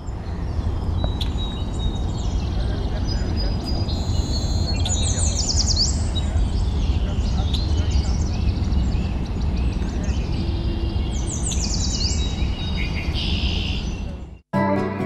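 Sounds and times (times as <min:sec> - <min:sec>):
birds chirping and calling: 0:00.0 - 0:14.4
guitar music: 0:14.5 - 0:15.0.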